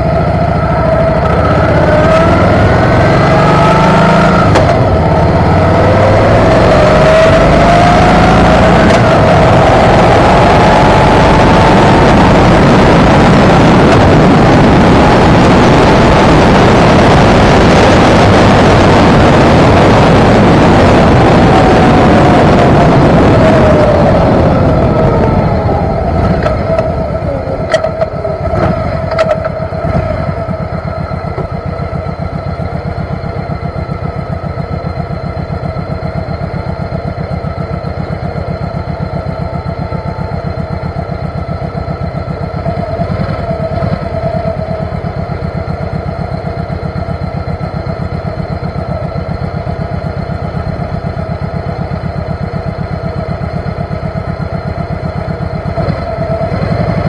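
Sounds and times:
motorcycle engine idling: 0.0 - 1.6, 18.7 - 57.0.

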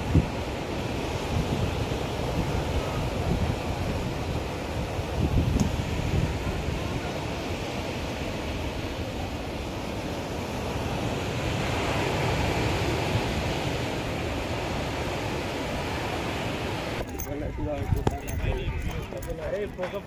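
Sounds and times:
sea waves washing onto beach: 0.0 - 18.4
wind buffeting microphone: 0.0 - 20.0.

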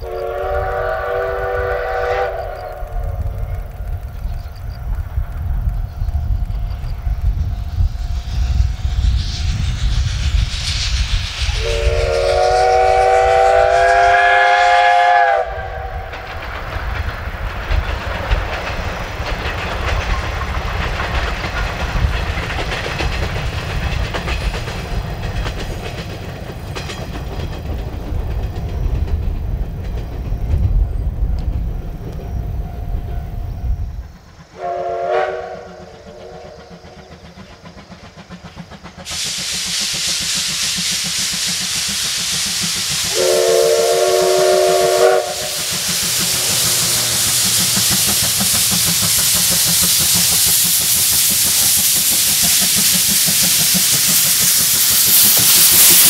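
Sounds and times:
steam locomotive whistle: 0.0 - 3.2, 11.4 - 16.3, 34.5 - 37.1, 43.0 - 47.8, 53.3 - 56.0
train rumbling past: 0.0 - 56.0
wheels clattering over rail joints: 15.9 - 32.0.

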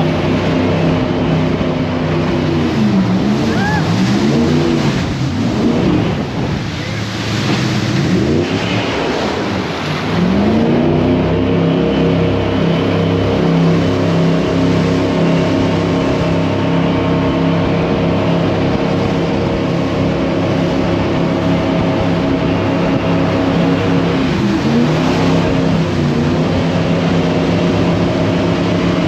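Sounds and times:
boat engine revving: 0.0 - 29.0
rushing noise: 2.4 - 10.9.

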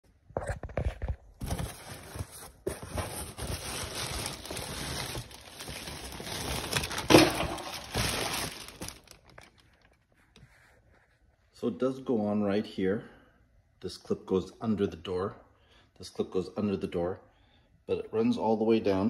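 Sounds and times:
cardboard box rustling: 1.0 - 9.7
plastic bag crinkling: 1.4 - 10.0.

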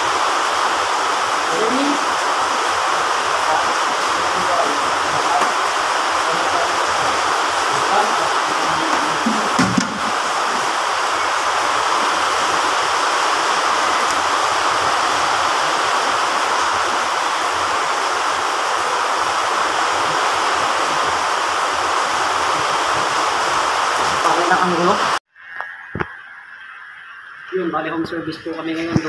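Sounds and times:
heavy rain falling: 0.0 - 29.0
soft knocks: 8.9 - 10.2.

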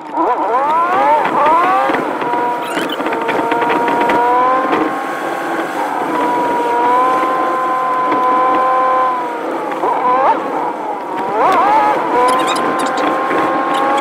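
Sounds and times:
truck engine drone: 2.2 - 7.1, 11.0 - 14.0.

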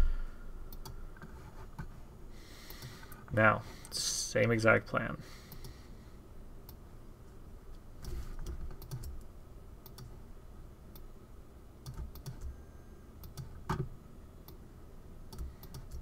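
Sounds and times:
low room hum: 0.0 - 16.0
computer mouse and keyboard clicking: 8.0 - 10.1, 11.8 - 12.5, 13.2 - 13.9, 15.3 - 16.0.

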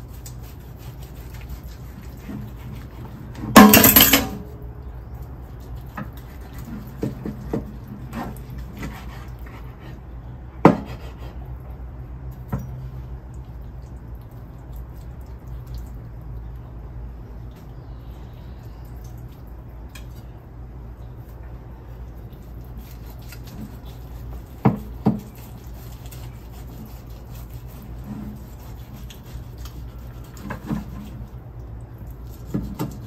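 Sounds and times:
knife slicing meat: 0.0 - 3.3, 8.1 - 10.0, 10.7 - 11.4, 22.4 - 31.2
low steady hum: 0.0 - 33.0.

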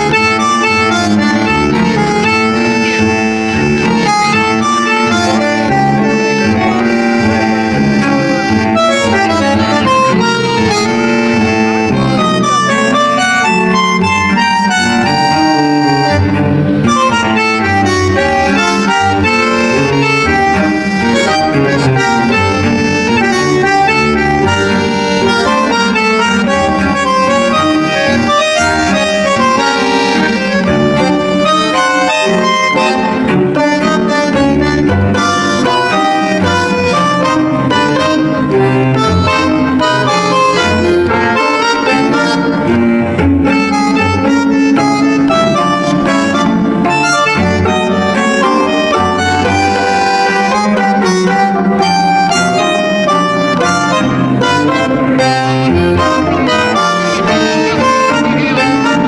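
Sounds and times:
melodic instrumental music: 0.0 - 59.0.

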